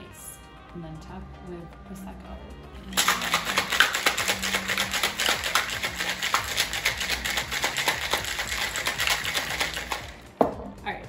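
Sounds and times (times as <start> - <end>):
ice rattling in cocktail shaker: 2.9 - 10.4.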